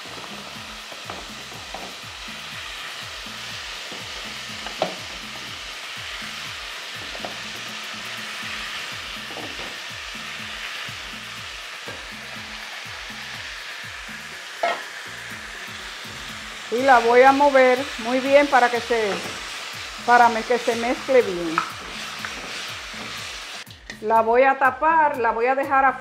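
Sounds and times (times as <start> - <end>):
meat sizzling in oil: 0.0 - 23.8
utensil clicking against pot: 21.5 - 22.5.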